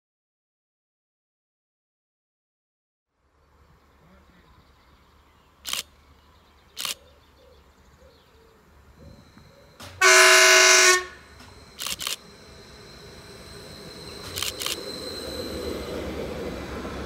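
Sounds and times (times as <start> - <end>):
sharp clicks: 5.6 - 5.9, 6.8 - 7.0, 11.4 - 12.2, 14.2 - 14.8
train horn chord: 10.0 - 11.5.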